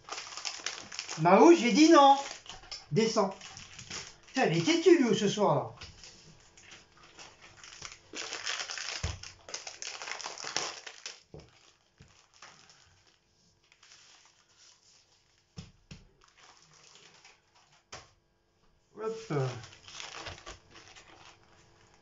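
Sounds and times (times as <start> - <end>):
plastic packaging crinkling: 0.0 - 15.5, 16.1 - 17.9, 19.2 - 22.0.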